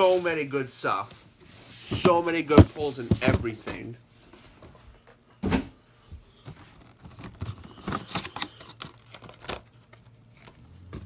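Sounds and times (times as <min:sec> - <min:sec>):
packaging crinkling and tearing: 0:06.8 - 0:10.6.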